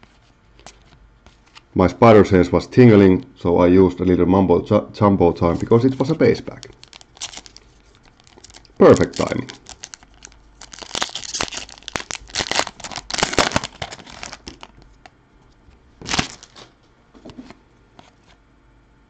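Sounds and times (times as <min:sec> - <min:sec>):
foil wrapper tearing and crinkling: 0:06.0 - 0:15.1, 0:16.0 - 0:16.7.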